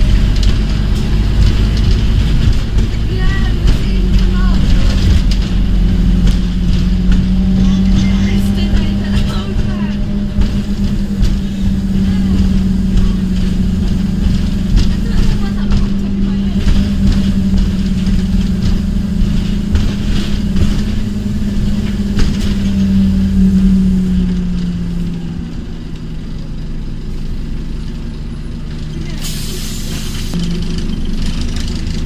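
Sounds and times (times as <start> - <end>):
bus engine drone from inside: 0.0 - 32.0
air brake hiss: 29.2 - 30.3.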